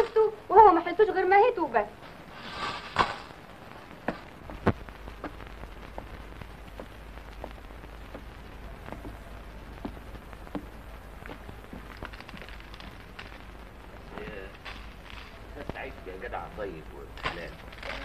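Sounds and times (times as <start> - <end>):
low steady hum: 0.0 - 18.0
footsteps on stairs: 3.8 - 12.1.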